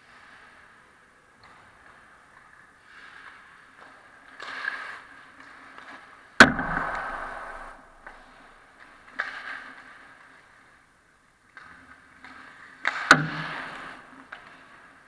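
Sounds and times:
puck hitting with sharp crack: 0:06.4 - 0:09.7, 0:12.8 - 0:14.6.

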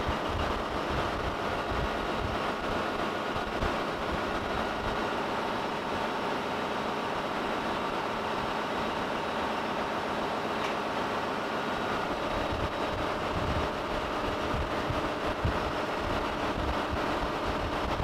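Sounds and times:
ship engine-room machinery drone: 0:00.0 - 0:18.0.

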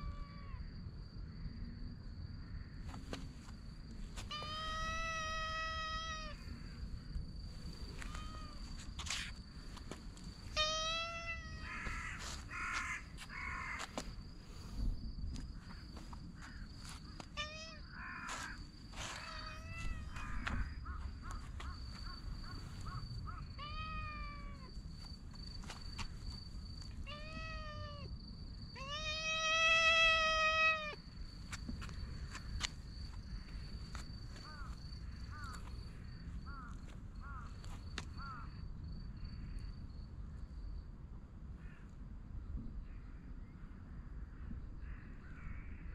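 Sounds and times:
cat meowing: 0:00.0 - 0:00.6, 0:04.3 - 0:06.6, 0:08.0 - 0:08.7, 0:10.5 - 0:12.9, 0:17.3 - 0:18.6, 0:19.2 - 0:20.8, 0:23.3 - 0:24.7, 0:27.0 - 0:28.1, 0:28.8 - 0:31.0.

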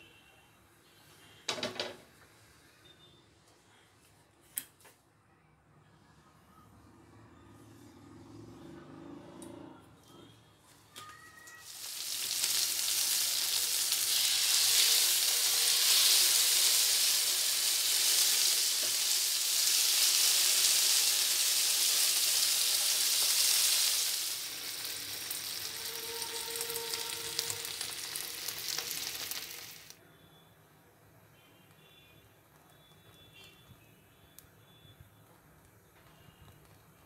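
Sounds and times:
chicken sizzling in hot oil: 0:11.6 - 0:30.0.

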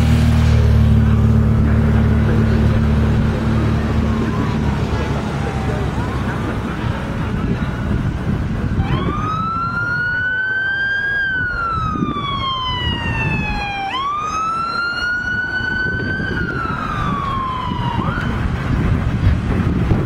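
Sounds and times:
motorcycles and traffic rumble: 0:00.0 - 0:20.0
siren wailing: 0:01.0 - 0:06.9, 0:08.7 - 0:18.8.

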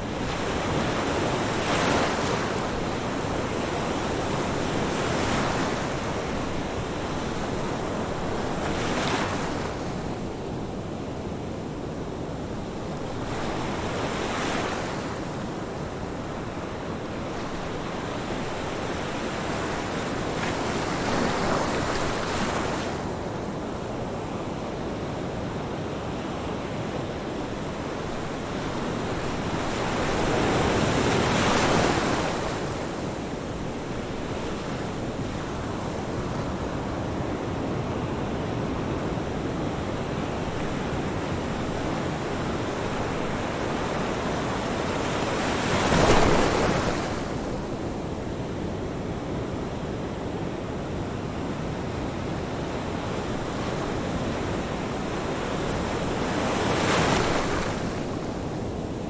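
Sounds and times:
ocean waves breaking: 0:40.2 - 0:47.7.

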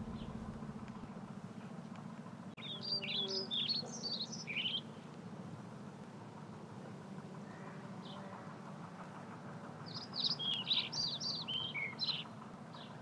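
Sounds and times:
songbird chirping: 0:00.0 - 0:01.2, 0:02.6 - 0:05.1, 0:09.9 - 0:13.0
faint low background noise: 0:00.0 - 0:10.5.

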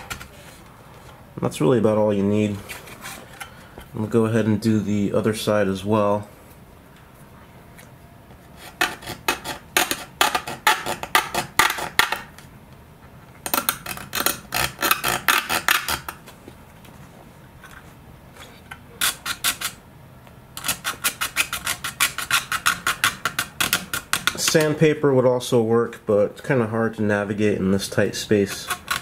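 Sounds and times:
file rasping on painted fuselage: 0:08.6 - 0:12.0, 0:13.7 - 0:16.2, 0:20.6 - 0:24.4, 0:28.3 - 0:29.0.

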